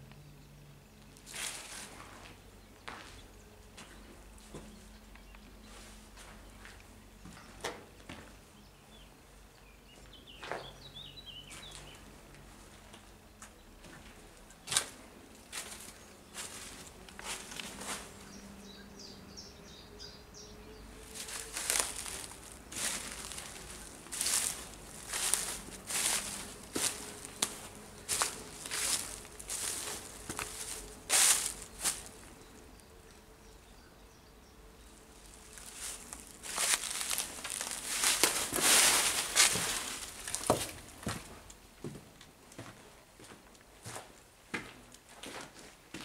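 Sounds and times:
footsteps on dry leaves: 0:01.2 - 0:02.4, 0:14.7 - 0:18.4, 0:20.9 - 0:32.6, 0:35.0 - 0:41.4
bird chirping: 0:08.5 - 0:12.1, 0:15.6 - 0:38.2.

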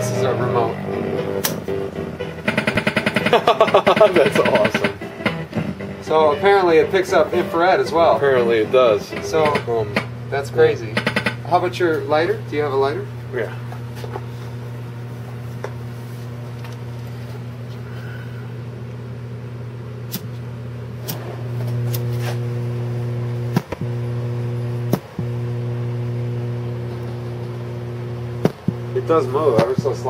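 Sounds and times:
low electrical hum from speakers: 0:00.0 - 0:30.0.

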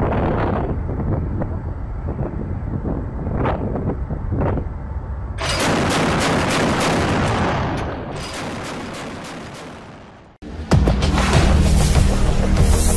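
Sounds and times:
wind buffeting microphone: 0:00.0 - 0:09.2
chain gun firing: 0:05.4 - 0:10.0.

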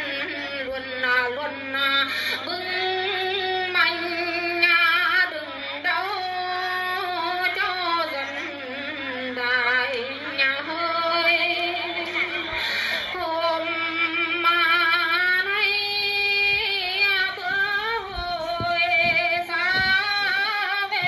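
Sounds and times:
person singing festive song: 0:07.5 - 0:21.0.

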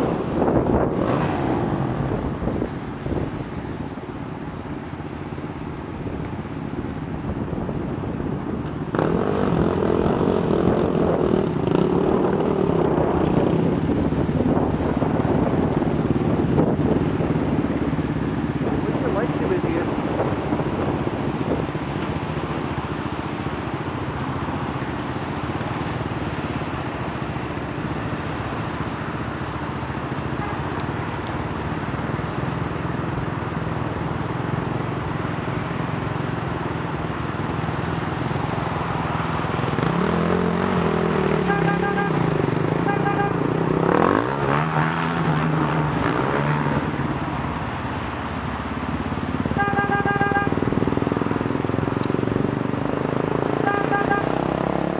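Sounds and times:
traffic hum and tyre hiss: 0:00.0 - 0:54.9
engine revving: 0:39.5 - 0:47.0, 0:52.7 - 0:54.9.

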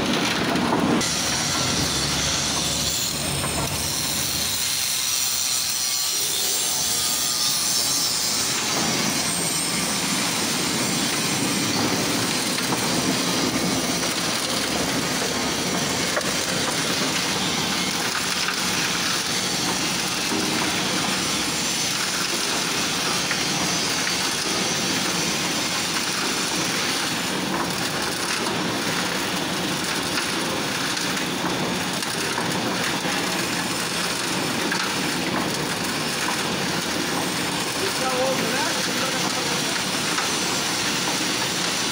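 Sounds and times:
concrete tumbling and grinding in drum: 0:00.0 - 0:04.6
concrete mixer running: 0:00.0 - 0:41.9.

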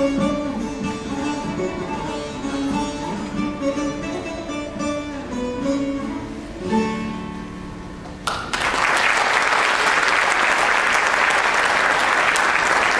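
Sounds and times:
plucked lute melody: 0:00.0 - 0:08.2
audience applause: 0:08.2 - 0:12.9.

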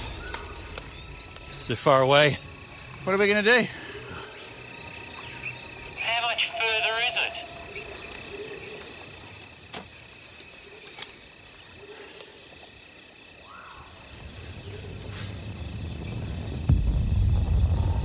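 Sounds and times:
faint outdoor ambience: 0:00.0 - 0:18.0
insects chirping: 0:00.0 - 0:18.0
low rumble: 0:15.0 - 0:18.0.

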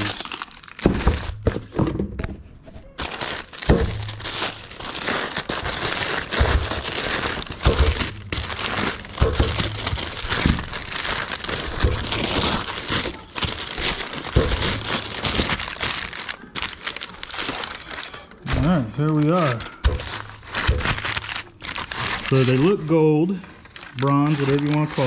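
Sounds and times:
plastic packaging crinkling: 0:00.0 - 0:01.8, 0:02.8 - 0:25.0
parts knocking and clunking: 0:00.8 - 0:02.7.

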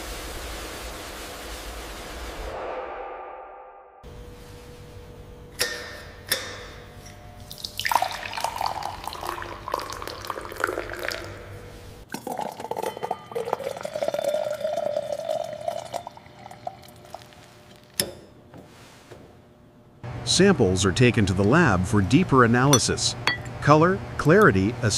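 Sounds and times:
wine pouring into a glass: 0:07.5 - 0:17.8.

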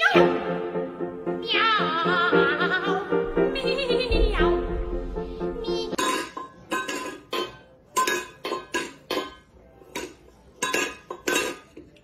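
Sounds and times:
metal bowl clanking on hard floor: 0:05.9 - 0:12.0.

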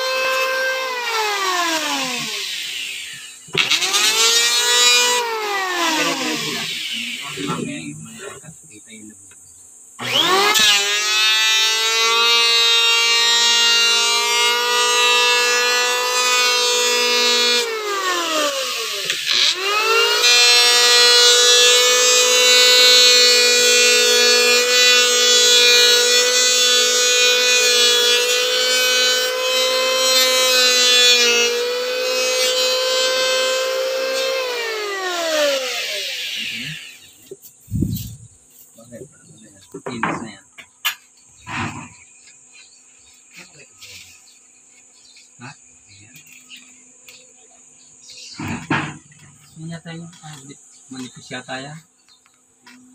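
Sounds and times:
electric planer motor whining: 0:00.0 - 0:07.6, 0:10.0 - 0:37.3.

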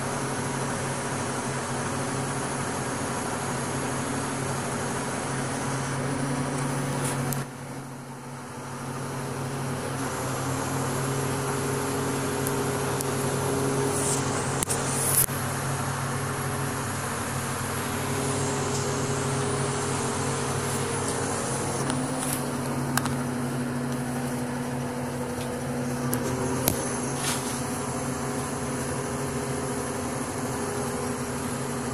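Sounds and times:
crane engine humming: 0:00.0 - 0:31.9.

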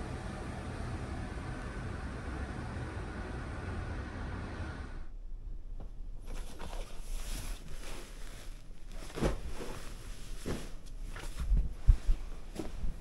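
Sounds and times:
steady low hum: 0:00.0 - 0:13.0
cloth rustling: 0:05.8 - 0:13.0.

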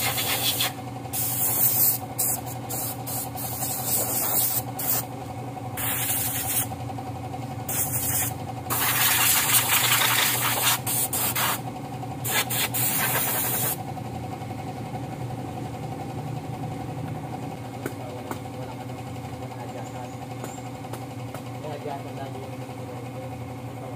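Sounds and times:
air hose hissing blasts: 0:00.0 - 0:05.0, 0:05.8 - 0:06.7, 0:07.7 - 0:11.6, 0:12.2 - 0:13.8
engine-like hum: 0:00.0 - 0:23.9.

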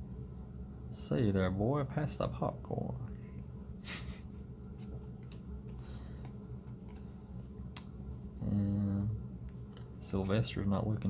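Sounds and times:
low hum: 0:00.0 - 0:11.0
cards rustling: 0:04.8 - 0:08.3.

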